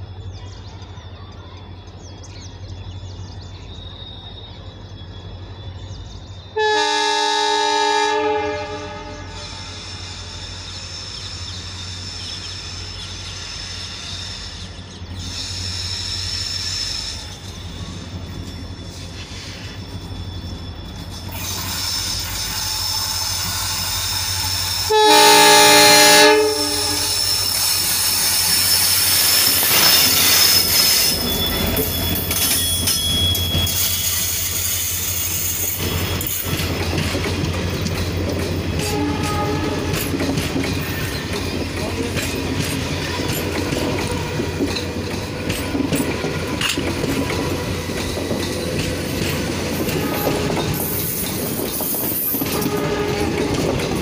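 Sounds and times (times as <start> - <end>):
train horn blast: 6.6 - 9.7, 24.8 - 27.5, 38.8 - 40.1, 49.8 - 51.1, 52.4 - 53.9
train wheels clattering over rails: 8.5 - 54.0
locomotive engine running: 14.6 - 54.0.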